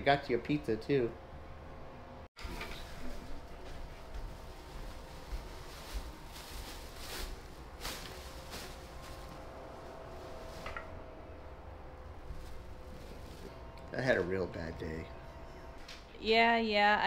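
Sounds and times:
plastic bag crinkling: 4.9 - 9.4.

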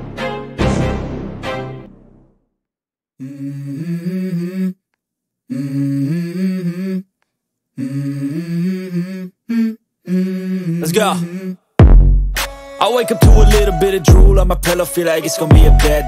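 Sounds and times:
hummed vocal melody: 3.2 - 4.9, 5.5 - 7.2, 7.8 - 11.7, 12.9 - 16.0.

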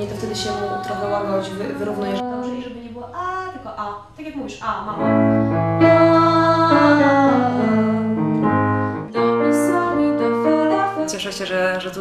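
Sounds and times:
children singing: 0.0 - 3.2, 5.8 - 8.2
piano chords: 0.0 - 12.0.

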